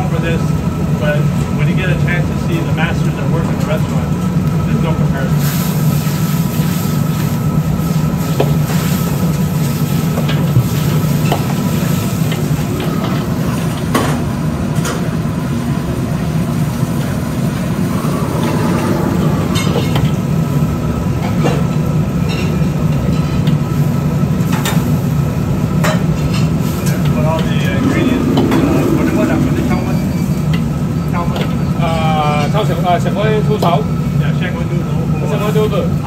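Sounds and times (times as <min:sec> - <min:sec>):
gas burner roaring: 0:03.8 - 0:22.2, 0:23.6 - 0:32.4.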